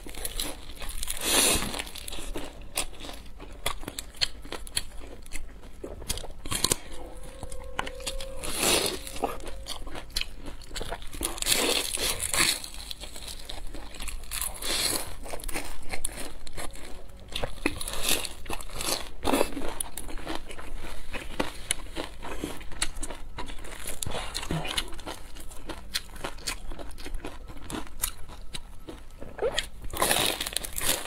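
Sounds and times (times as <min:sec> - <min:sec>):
crunchy pastry being chewed: 0:00.0 - 0:31.0.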